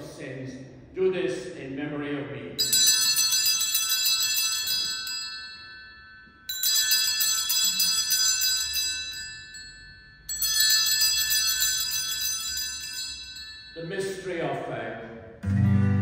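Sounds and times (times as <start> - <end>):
small altar bells jangling: 2.6 - 14.7.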